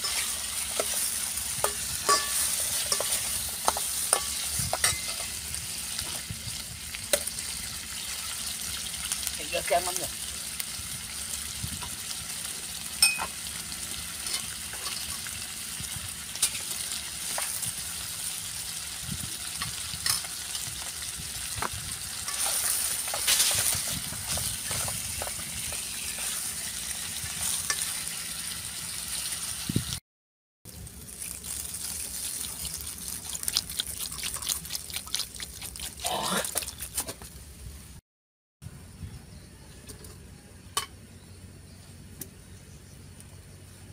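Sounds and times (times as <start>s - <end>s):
fish sizzling in a pot: 0.0s - 30.0s, 30.7s - 38.0s
chopsticks and spoon clinking on pot: 1.6s - 5.4s, 13.0s - 13.3s
water pouring into a pot: 31.0s - 36.9s.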